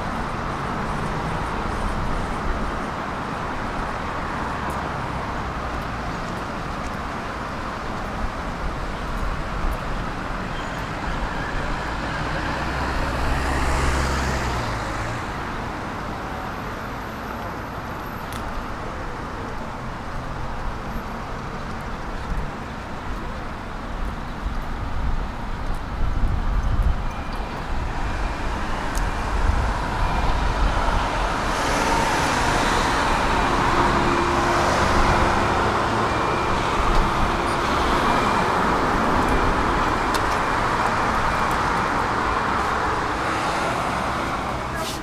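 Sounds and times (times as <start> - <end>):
cars driving past: 10.8 - 17.1, 27.4 - 45.0
heavy vehicle engine rumbling: 22.1 - 45.0.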